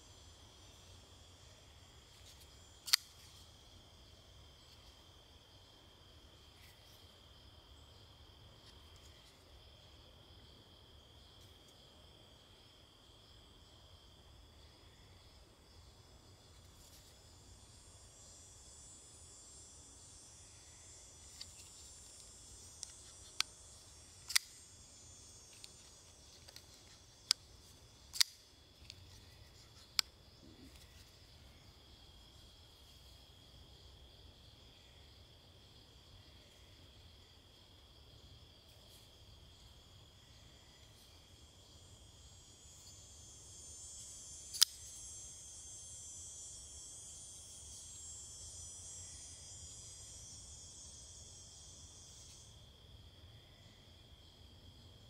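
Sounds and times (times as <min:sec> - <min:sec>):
high insect buzz: 0:00.0 - 0:55.0
folding knife blade clicking: 0:02.8 - 0:03.1, 0:24.2 - 0:24.6, 0:28.1 - 0:28.4.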